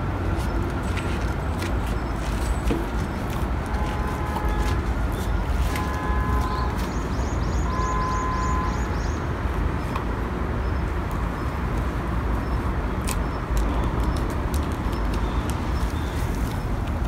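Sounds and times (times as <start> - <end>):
distant traffic rumble: 0.0 - 17.0.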